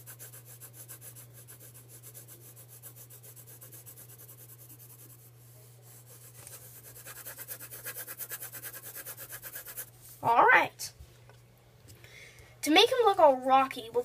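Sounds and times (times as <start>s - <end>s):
pencil scratching on paper: 0.0s - 9.9s.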